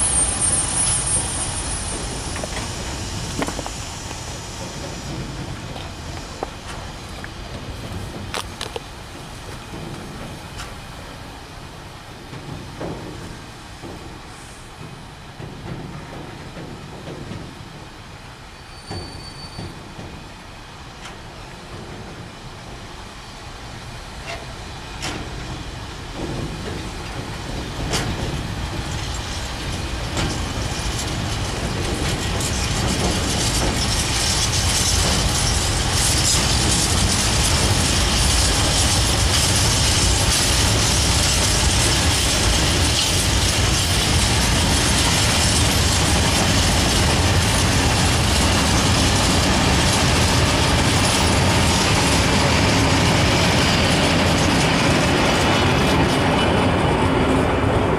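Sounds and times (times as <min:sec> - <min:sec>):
wheels clicking over rail joints: 0:00.0 - 0:23.3, 0:24.2 - 0:57.9
freight train rolling past: 0:00.0 - 0:57.9.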